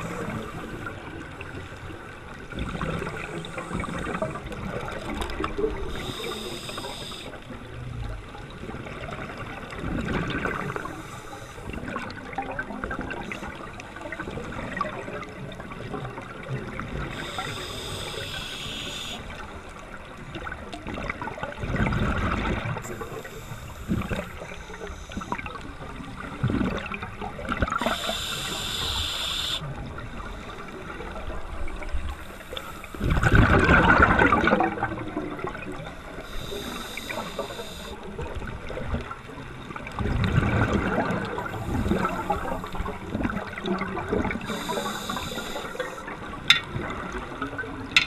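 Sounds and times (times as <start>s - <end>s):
regulator inhale hiss: 0.0s - 1.0s, 3.2s - 4.6s, 5.8s - 7.4s, 10.6s - 11.8s, 17.0s - 19.5s, 22.8s - 25.5s, 27.7s - 29.6s, 32.1s - 33.4s, 36.0s - 38.1s, 41.4s - 43.1s, 44.4s - 46.2s
exhaled air bubbling underwater: 0.0s - 48.0s.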